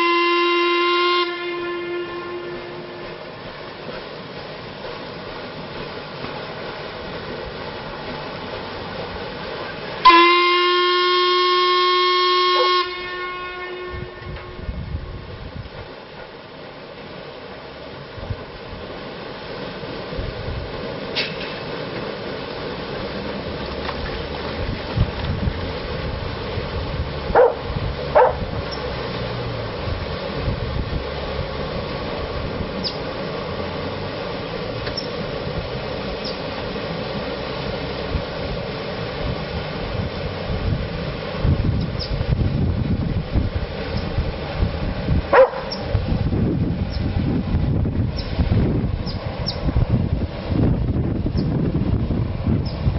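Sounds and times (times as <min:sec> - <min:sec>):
steam whistle blast: 0:00.0 - 0:03.3, 0:10.0 - 0:14.8
steamer mechanical running noise: 0:00.0 - 0:10.3, 0:10.9 - 0:52.9
dog barking: 0:27.4 - 0:27.6, 0:28.2 - 0:28.4, 0:45.3 - 0:45.8.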